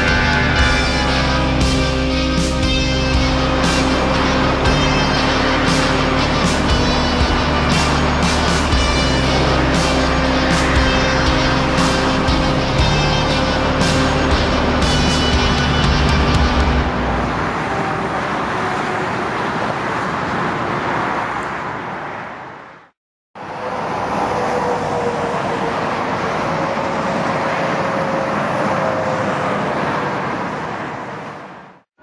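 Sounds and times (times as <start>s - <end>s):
jet engine rush: 0.0s - 31.8s.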